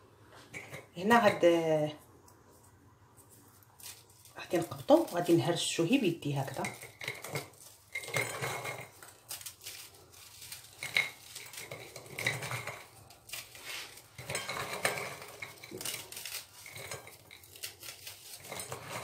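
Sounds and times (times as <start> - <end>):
cookies cracking and snapping: 3.3 - 5.4, 6.5 - 19.0.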